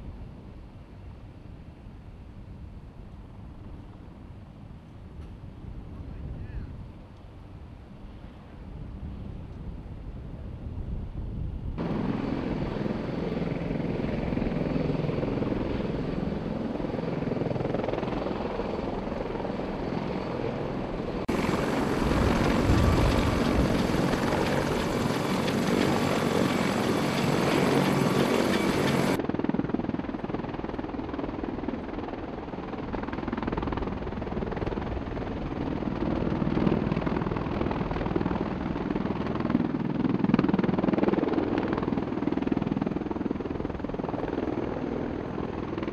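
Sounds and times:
helicopter turbines and rotor running: 0.1s - 45.9s
tiltrotor rotors hovering: 21.3s - 29.2s.

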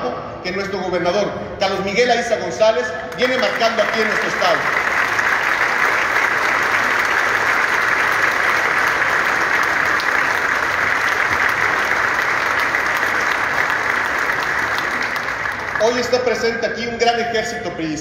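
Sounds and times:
large crowd applauding: 3.1s - 16.5s.

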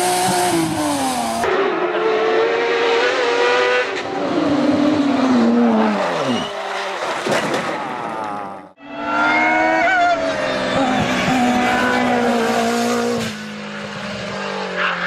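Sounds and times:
race car engines revving high: 0.0s - 7.2s, 8.0s - 15.0s
race car passing by: 8.8s - 15.0s.

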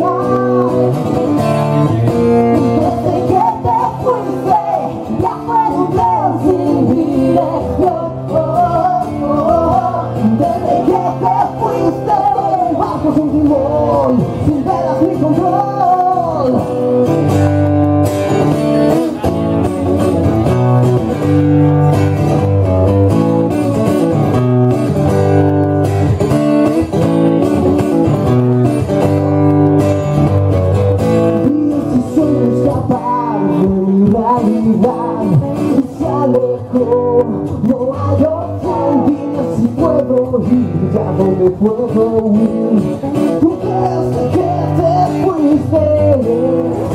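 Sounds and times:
man singing: 0.0s - 17.4s, 31.0s - 46.9s
strummed acoustic guitar: 0.0s - 46.9s.

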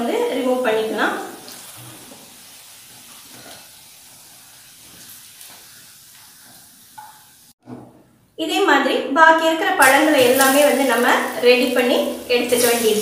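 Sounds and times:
slices sizzling in hot oil: 0.0s - 7.6s, 9.8s - 13.0s.

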